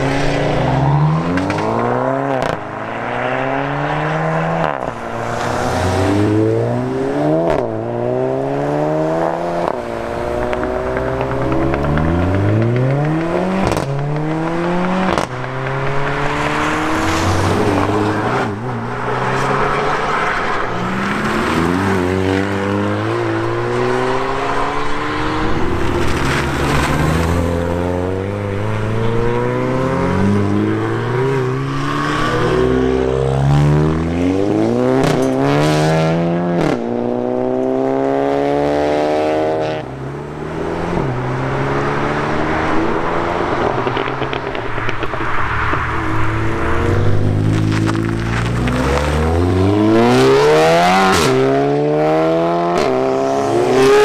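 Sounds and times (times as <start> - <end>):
car engines revving through gears: 0.0 - 54.0
sharp cracks at gear changes: 9.7 - 17.9.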